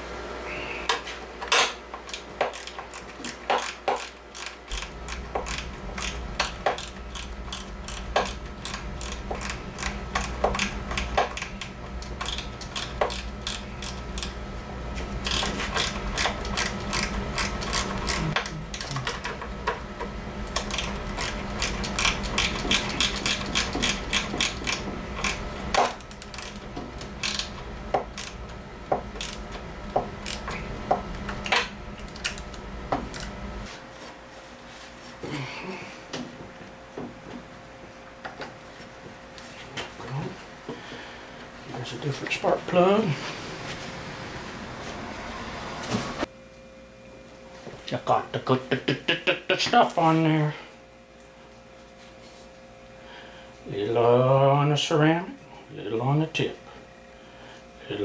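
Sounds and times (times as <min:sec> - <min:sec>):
torque wrench ratchet clicking: 0:02.1 - 0:14.4, 0:15.2 - 0:18.8, 0:20.6 - 0:25.4, 0:26.0 - 0:26.6, 0:27.2 - 0:27.5, 0:28.1 - 0:28.4, 0:29.2 - 0:29.4, 0:30.2 - 0:30.5.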